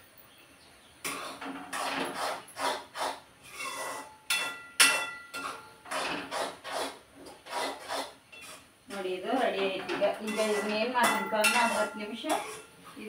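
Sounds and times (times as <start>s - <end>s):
spoon scraping a steel pan: 3.5s - 8.7s, 9.6s - 12.8s.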